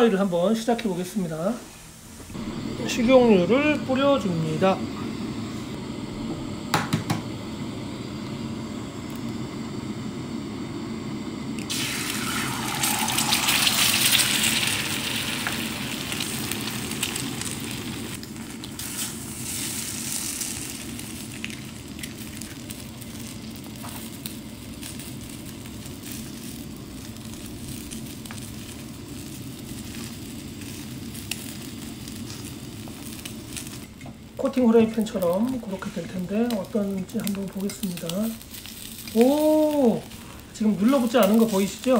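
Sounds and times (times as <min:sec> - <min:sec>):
eggs sizzling in oil: 0:00.0 - 0:41.9
egg cracking: 0:11.6 - 0:25.2.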